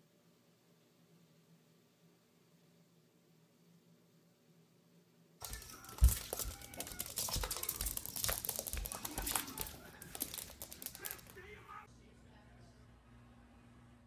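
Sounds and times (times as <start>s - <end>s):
claws scrabbling on hardwood floor: 5.4s - 11.6s.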